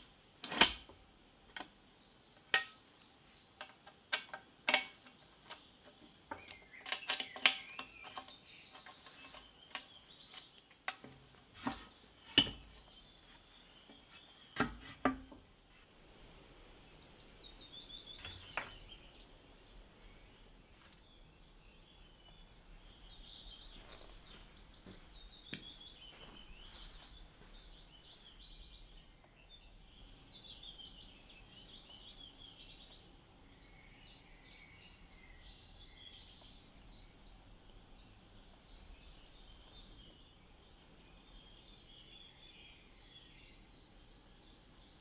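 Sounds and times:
bird chirping: 1.3s - 45.0s.

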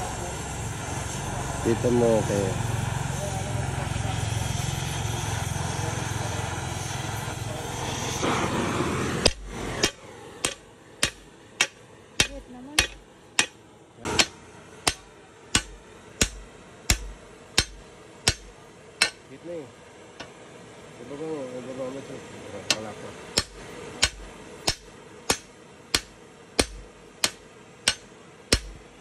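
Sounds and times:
flame hissing: 0.0s - 12.2s
hammer striking steel on anvil: 9.2s - 19.3s, 22.7s - 28.8s.

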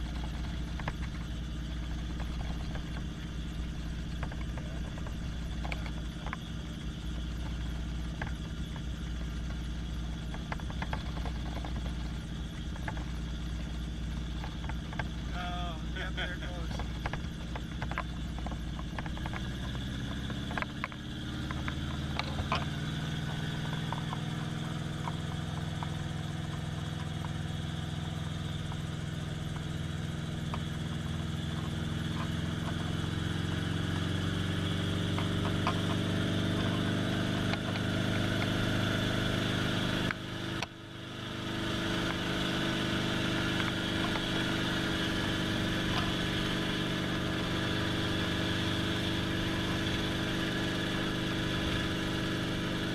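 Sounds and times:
helicopter engine and rotor: 0.0s - 52.9s.

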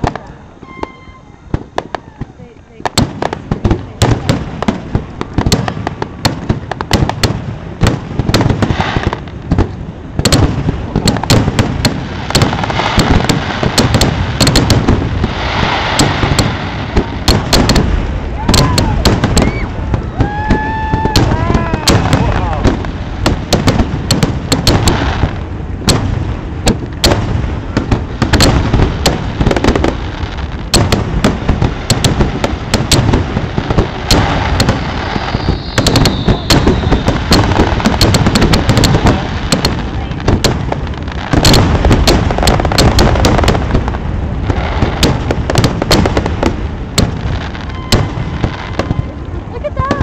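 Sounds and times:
falling firework whistle: 0.0s - 2.4s, 18.4s - 22.7s, 34.0s - 38.2s, 47.5s - 49.2s
fireworks booming and cracking: 0.0s - 50.0s
deep rumble: 9.2s - 50.0s.

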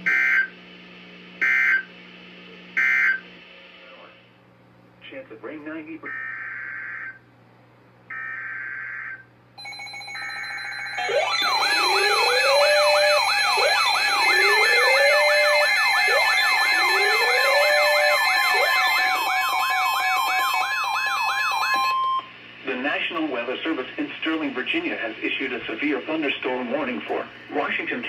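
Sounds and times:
warbling sirens: 6.1s - 7.2s, 8.1s - 22.3s
data tone bursts: 9.6s - 22.3s
high beeps: 9.6s - 22.3s
steady warning tone: 9.6s - 22.3s.

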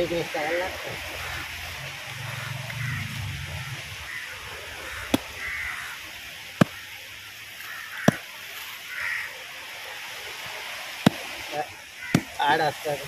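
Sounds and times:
knife chopping on wooden board: 8.0s - 8.2s, 11.0s - 11.2s.

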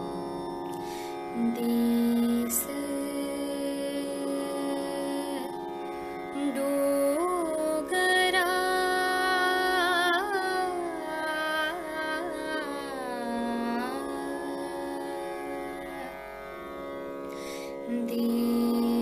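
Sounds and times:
woman singing with vibrato: 1.4s - 5.5s, 6.4s - 15.0s, 17.9s - 19.0s.

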